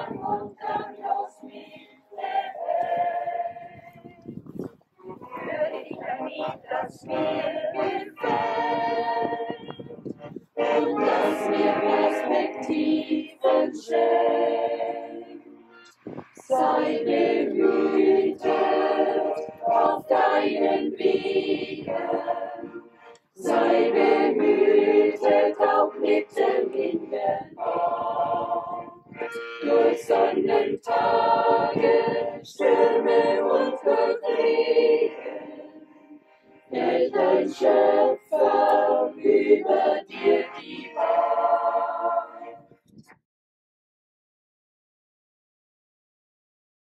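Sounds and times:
accordion: 0:00.0 - 0:04.0, 0:04.7 - 0:42.8
choir singing a hymn: 0:00.0 - 0:42.8.

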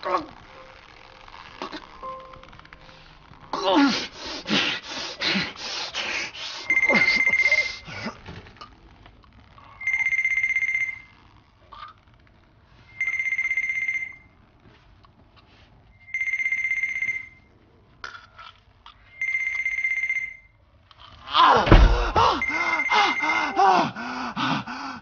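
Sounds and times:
electronic telephone ring: 0:06.7 - 0:07.7, 0:09.8 - 0:11.1, 0:12.9 - 0:14.3, 0:16.0 - 0:17.5, 0:19.1 - 0:20.6.

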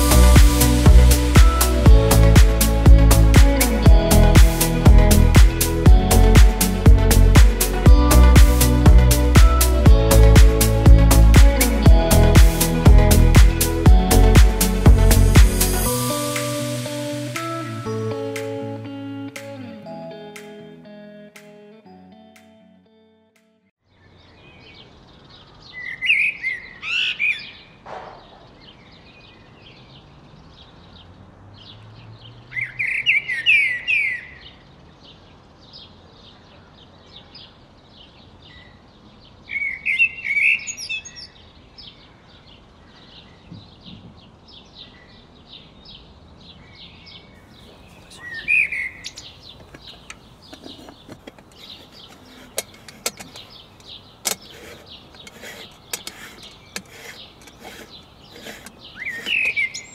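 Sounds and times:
faint birds chirping: 0:23.8 - 0:59.9
songbird singing loudly: 0:24.0 - 0:27.7, 0:32.5 - 0:34.6, 0:39.5 - 0:42.0, 0:46.6 - 0:59.9.

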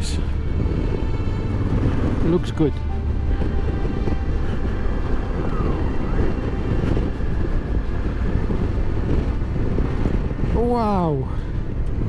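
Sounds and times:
motorcycle engine cruising: 0:00.0 - 0:12.0
wind buffeting microphone: 0:00.0 - 0:12.0.

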